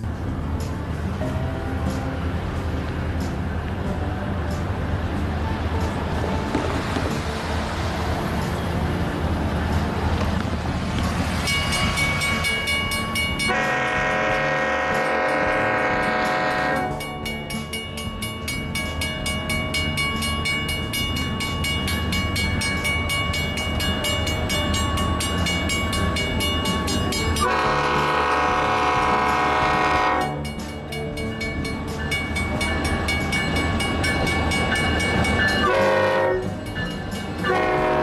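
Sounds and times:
diesel locomotive rumble: 0:00.0 - 0:38.0
crossing bell dinging: 0:11.2 - 0:38.0
locomotive air horn blast: 0:13.5 - 0:17.0, 0:27.4 - 0:30.4, 0:35.6 - 0:36.6, 0:37.4 - 0:38.0.

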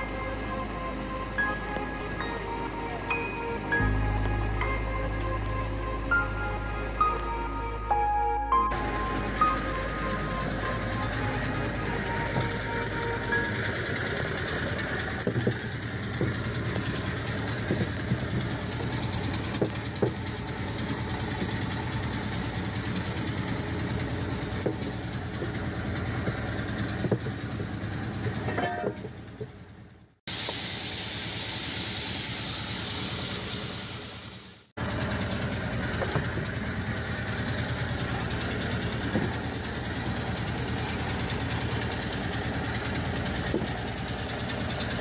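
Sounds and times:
engine idling: 0:00.0 - 0:45.0
hiss: 0:30.3 - 0:34.7.

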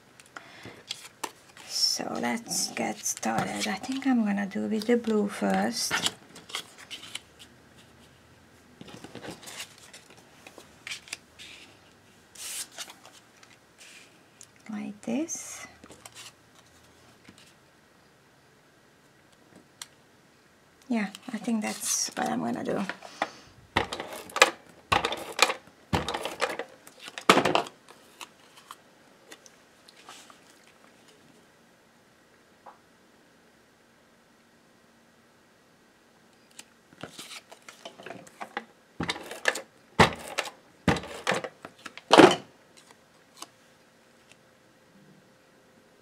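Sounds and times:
paper rustling: 0:04.8 - 0:08.2, 0:08.8 - 0:11.8, 0:12.4 - 0:14.1, 0:36.5 - 0:38.4.

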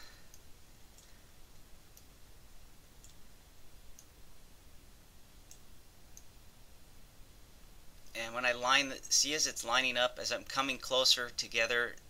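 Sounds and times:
low background hiss: 0:00.0 - 0:12.0
faint sharp clicks: 0:00.3 - 0:02.2, 0:03.0 - 0:03.2, 0:05.4 - 0:06.3.

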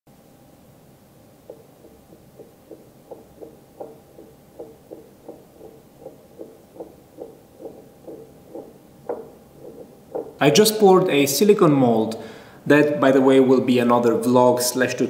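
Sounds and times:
sculpture knocking on tabletop: 0:01.5 - 0:10.4.

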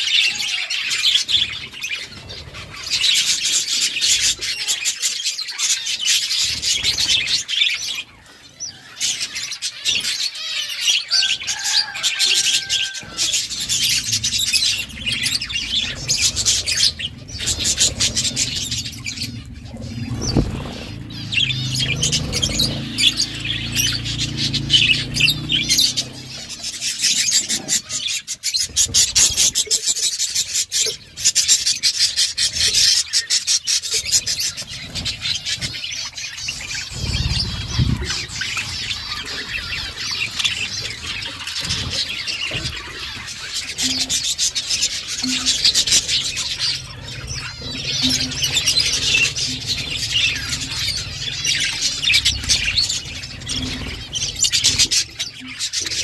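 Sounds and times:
budgerigars chirping and chattering: 0:00.0 - 0:56.0
low hum: 0:13.0 - 0:27.0.

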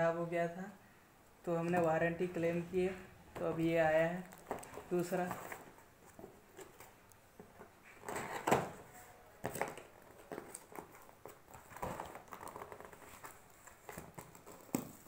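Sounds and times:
cardboard box being opened: 0:09.4 - 0:15.0.

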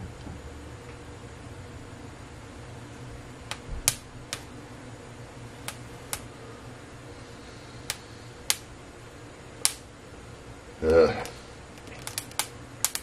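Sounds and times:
gas burner flames: 0:00.0 - 0:13.0
steady low hum: 0:00.0 - 0:13.0
pepper skins crackling and popping: 0:03.5 - 0:04.5, 0:05.6 - 0:06.3, 0:07.8 - 0:08.7, 0:09.6 - 0:09.9, 0:10.8 - 0:13.0.

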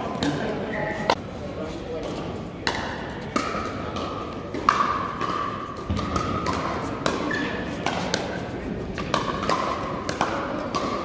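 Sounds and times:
paddles hitting plastic ball: 0:02.6 - 0:11.0.

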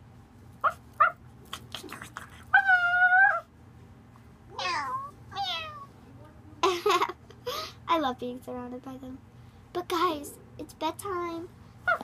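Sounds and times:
cat meowing: 0:04.6 - 0:05.9.

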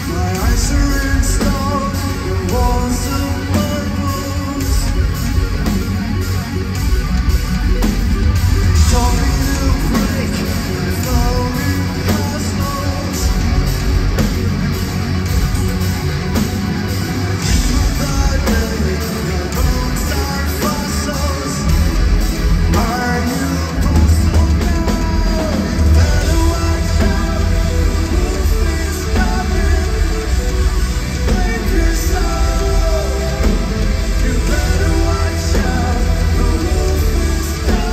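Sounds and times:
lead vocalist singing: 0:00.0 - 0:05.9, 0:08.6 - 0:14.8, 0:17.3 - 0:37.9
bass: 0:00.0 - 0:37.9
distorted guitar: 0:00.0 - 0:37.9
drums: 0:00.0 - 0:37.9
keyboards: 0:00.0 - 0:37.9.

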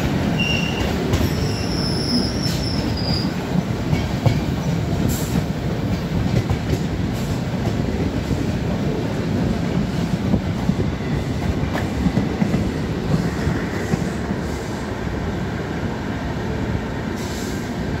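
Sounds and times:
rail joint clicks: 0:00.0 - 0:08.8
passing train: 0:00.0 - 0:18.0
train wheels rumbling on rails: 0:00.0 - 0:18.0.

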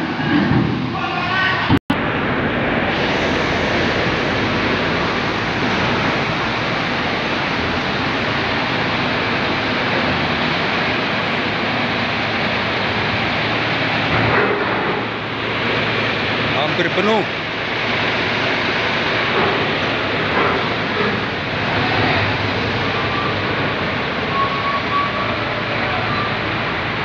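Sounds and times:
engines and machinery rumbling: 0:00.0 - 0:27.0.

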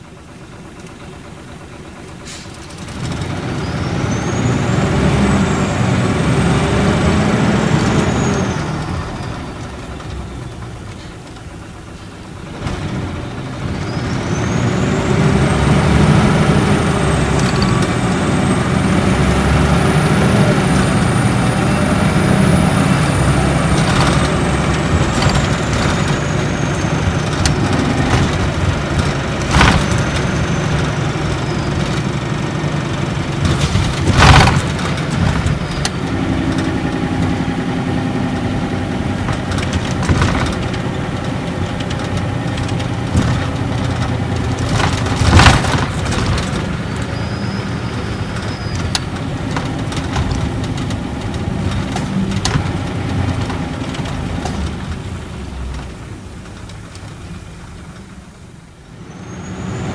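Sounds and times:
bus diesel engine: 0:00.0 - 0:59.9
turbocharger whistle: 0:46.9 - 0:48.9, 0:59.1 - 0:59.9.

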